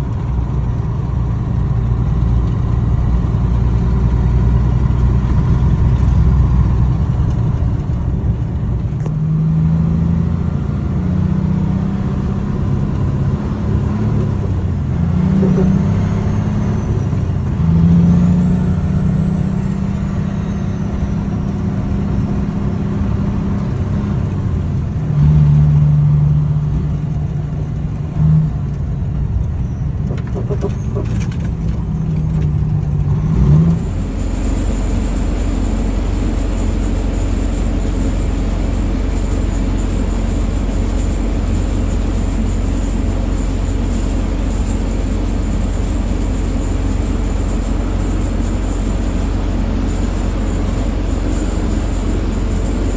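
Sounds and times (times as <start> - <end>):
truck engine running: 0.0 - 52.9
tyre and road rumble: 0.0 - 52.9.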